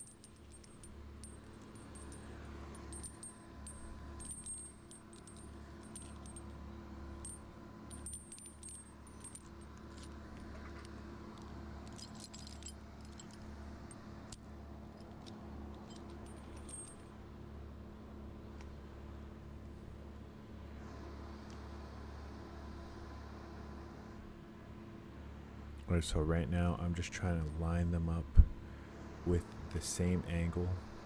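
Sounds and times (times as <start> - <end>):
metal carabiners clinking: 0.0 - 17.2
faint steady hum: 0.0 - 31.0.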